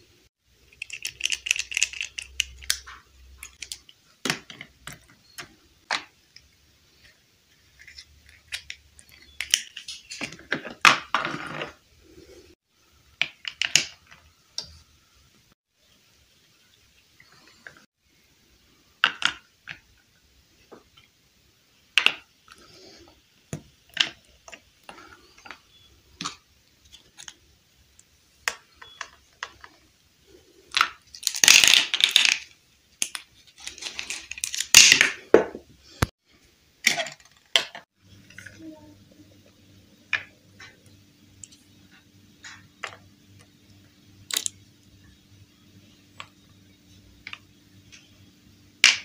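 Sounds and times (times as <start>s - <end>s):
plastic toy pieces clicking: 0.7s - 4.4s, 30.7s - 33.2s, 44.3s - 44.6s.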